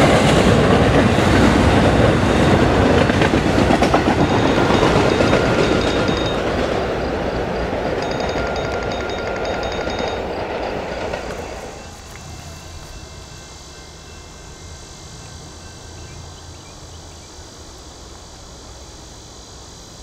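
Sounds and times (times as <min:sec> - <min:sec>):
freight train passing: 0:00.0 - 0:20.0
insects chirring: 0:00.6 - 0:20.0.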